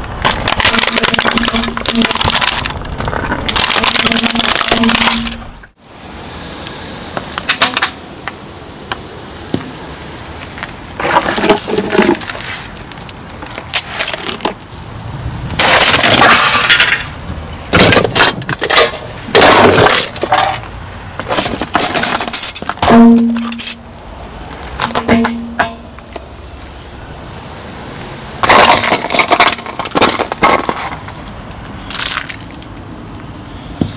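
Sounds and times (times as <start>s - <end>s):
objects crushed under car tyre: 0.0s - 5.6s, 10.6s - 14.6s, 15.6s - 23.8s, 24.6s - 25.9s, 28.4s - 32.8s
plastic and metal cracking and crunching: 0.0s - 5.7s, 10.5s - 14.6s, 15.5s - 23.8s, 24.5s - 26.2s, 28.4s - 32.8s.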